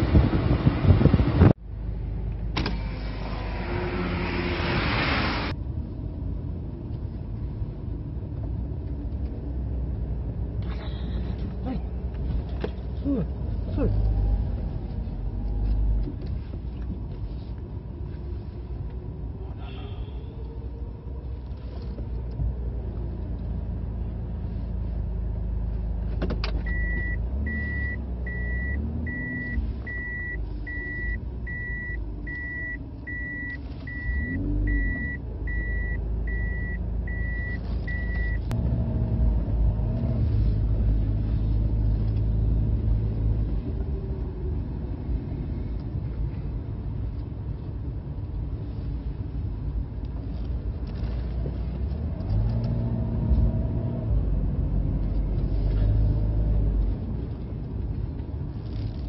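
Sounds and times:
traffic: 0.0 - 59.0
vehicle engine rumble: 0.0 - 59.0
high electronic beep: 26.7 - 38.4.

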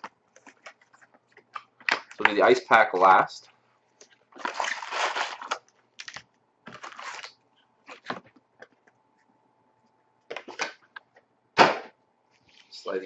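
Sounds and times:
foil packs crinkling: 4.3 - 8.2.

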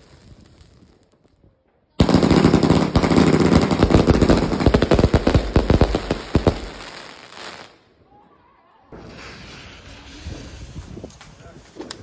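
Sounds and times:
firework cake bangs: 2.0 - 6.9.

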